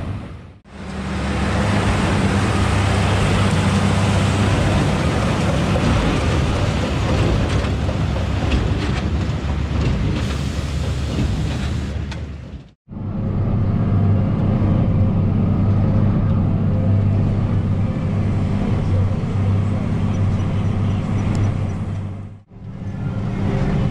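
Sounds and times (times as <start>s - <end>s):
baler machinery noise: 0.0s - 23.9s
tractor engine under load: 0.7s - 12.8s.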